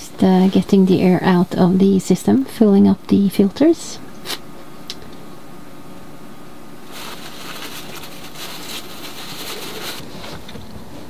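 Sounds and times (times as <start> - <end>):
soft squishing and crackling: 6.9 - 10.0.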